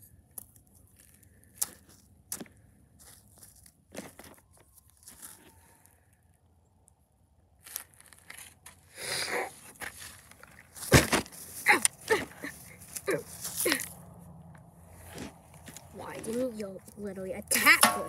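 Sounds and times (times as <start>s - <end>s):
toy figurines crunching on gravel: 0.3s - 5.9s, 7.6s - 14.0s, 15.0s - 17.7s
rustle: 3.0s - 6.1s, 9.5s - 14.0s.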